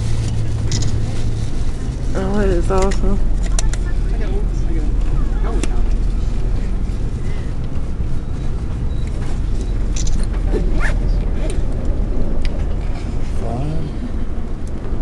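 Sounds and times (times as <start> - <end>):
steady low rumble: 0.0 - 15.0
saddle leather creaking: 9.2 - 13.2.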